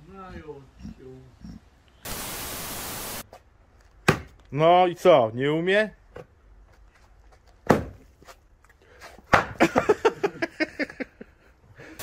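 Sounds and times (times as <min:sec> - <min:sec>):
axe striking wood: 0:04.0 - 0:04.4, 0:07.6 - 0:08.0, 0:09.3 - 0:09.6.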